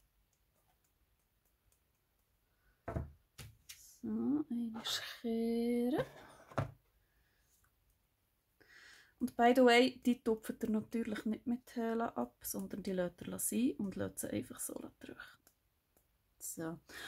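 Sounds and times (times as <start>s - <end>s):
dull knocks on table: 2.8s - 3.2s.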